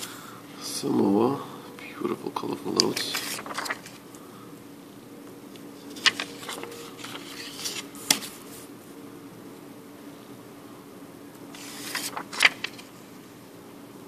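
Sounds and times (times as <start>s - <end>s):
steady low hum: 0.0s - 14.0s
paper notes rustling: 2.4s - 4.1s, 5.8s - 8.7s, 11.5s - 13.0s.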